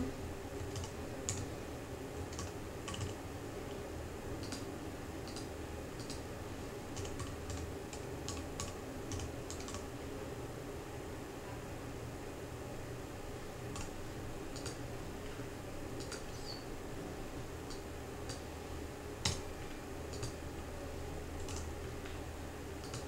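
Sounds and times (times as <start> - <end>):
steady low hum: 0.0 - 23.0
typing on a keyboard: 0.6 - 1.5, 2.3 - 3.2, 4.4 - 6.2, 7.0 - 9.8, 13.7 - 13.9, 14.5 - 14.8, 16.0 - 16.3, 20.1 - 20.4, 21.4 - 21.7, 22.8 - 23.0.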